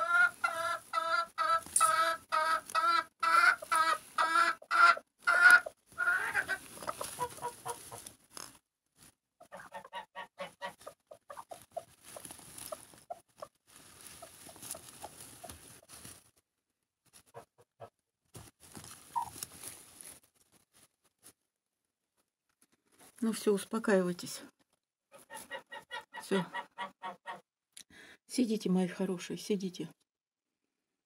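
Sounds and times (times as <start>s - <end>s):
hens clucking: 0.0s - 8.2s, 9.4s - 15.9s, 19.2s - 19.4s, 25.2s - 27.4s.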